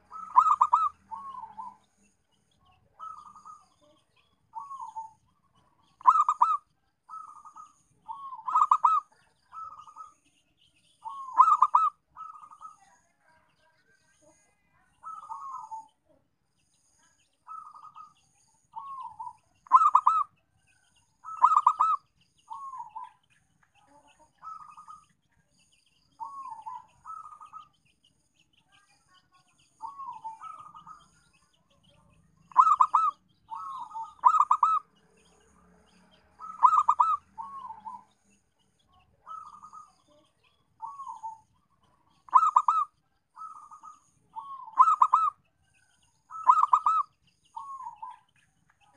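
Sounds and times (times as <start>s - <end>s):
dove cooing: 0.0s - 1.8s, 3.0s - 10.2s, 11.0s - 12.8s, 15.0s - 15.9s, 17.5s - 18.1s, 18.7s - 20.3s, 21.2s - 23.2s, 24.4s - 25.0s, 26.2s - 27.7s, 29.8s - 31.2s, 32.5s - 34.9s, 36.3s - 38.2s, 39.2s - 40.2s, 40.8s - 45.4s, 46.3s - 48.2s.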